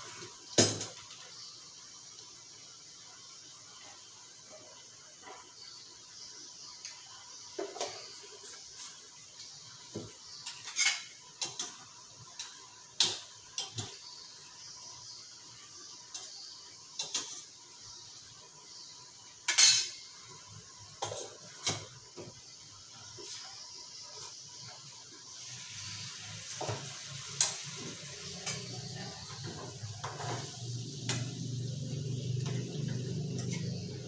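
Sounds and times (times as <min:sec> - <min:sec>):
faint steady hiss: 0:00.0 - 0:34.0
metal pots and pans clinking: 0:10.4 - 0:11.8, 0:12.4 - 0:14.0, 0:17.0 - 0:17.5, 0:19.4 - 0:20.0, 0:28.2 - 0:31.3.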